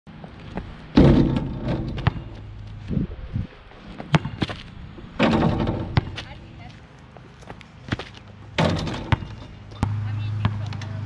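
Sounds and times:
sneakers scuffing on asphalt: 6.0 - 8.4.

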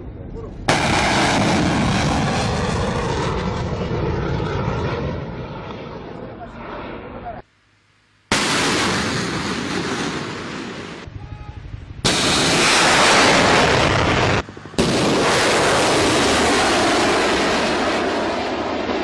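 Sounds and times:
rocket booster roaring: 0.6 - 7.2, 12.0 - 19.0.

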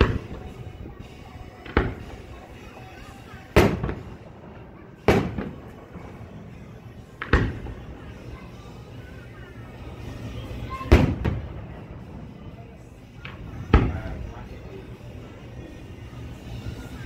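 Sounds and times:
firework booms with echo: 0.0 - 0.5, 1.7 - 2.2, 3.6 - 6.1, 7.2 - 7.8, 10.9 - 12.2, 13.7 - 14.2.

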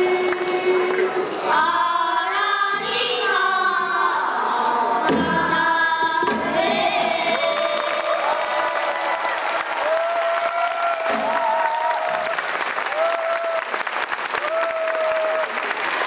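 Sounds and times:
children singing together: 0.0 - 7.8.

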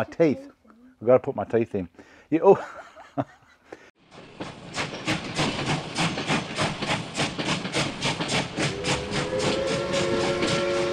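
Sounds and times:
steam locomotive chuffing: 4.0 - 10.9
steam whistle chord: 8.6 - 10.9.

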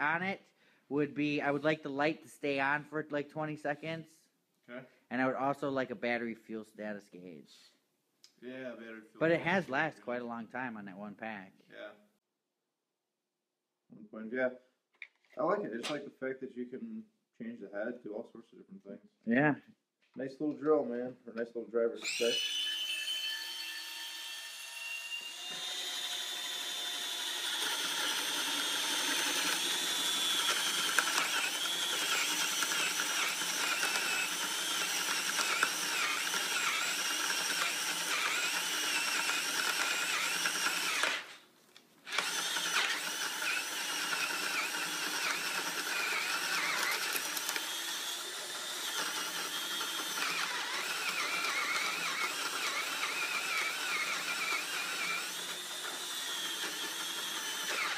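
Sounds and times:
drill boring into wood: 22.0 - 41.4, 42.0 - 57.9.

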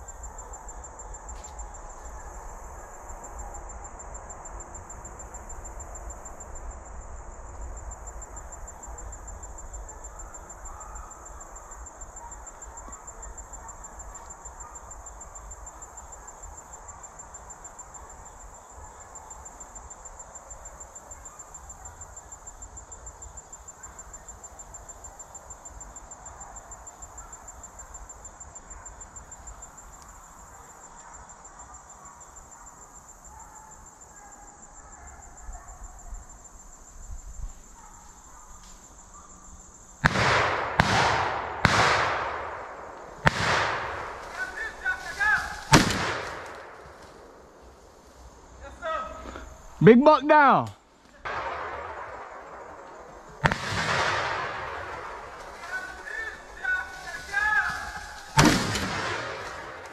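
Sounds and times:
insects trilling: 0.0 - 59.9
shotgun blasts with echo: 40.0 - 47.3, 51.2 - 56.4, 57.0 - 59.9.

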